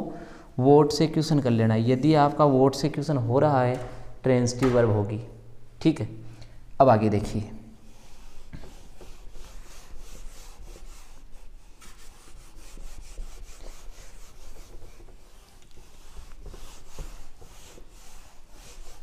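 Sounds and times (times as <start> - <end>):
duster rubbing on whiteboard: 7.8 - 19.0.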